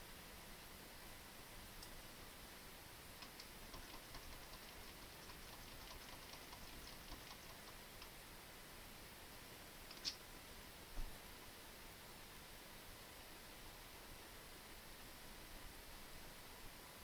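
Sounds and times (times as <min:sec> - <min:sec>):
faint light clicks and ticks: 0:09.9 - 0:10.2.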